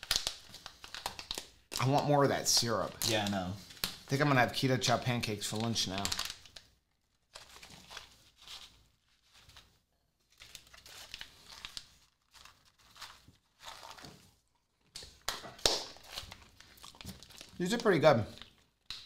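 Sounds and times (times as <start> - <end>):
snack bag crinkling: 0.0 - 4.1, 5.0 - 19.0.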